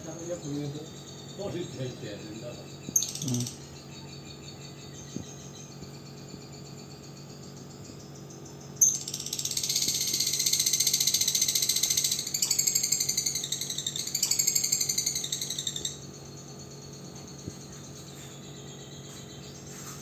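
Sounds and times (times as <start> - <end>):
lovebird rattling chatter: 2.9 - 3.6, 8.8 - 16.0.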